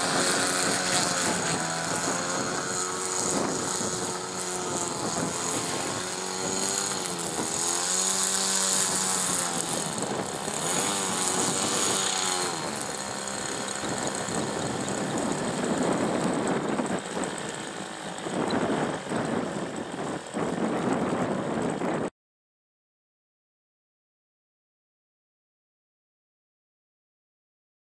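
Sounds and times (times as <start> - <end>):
rough rushing noise: 0.0 - 20.2
model jet motor running: 0.0 - 22.1.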